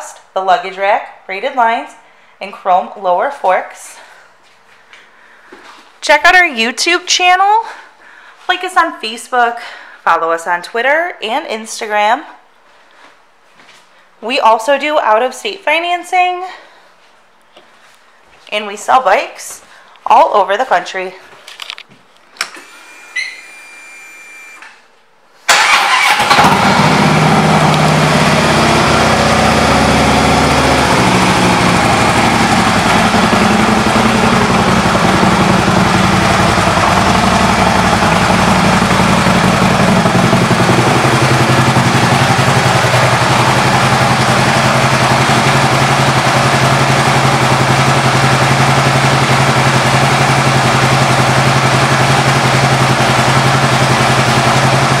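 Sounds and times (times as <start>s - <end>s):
motorcycle engine starting and idling: 25.5s - 55.0s.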